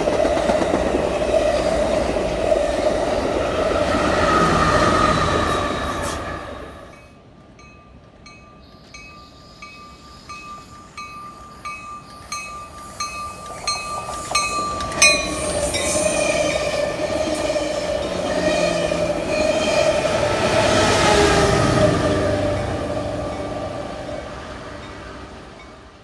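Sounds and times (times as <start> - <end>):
train wheels squealing on rails: 0.0 - 7.3, 8.3 - 25.8
bell dinging: 7.0 - 15.9.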